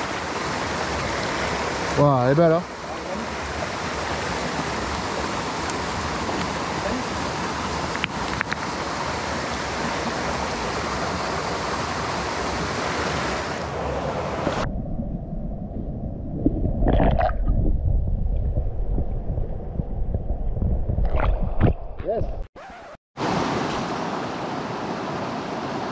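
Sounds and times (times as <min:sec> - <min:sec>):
stream rushing over rocks: 0:00.0 - 0:14.6, 0:23.2 - 0:25.9
muffled underwater rumble: 0:14.6 - 0:22.4.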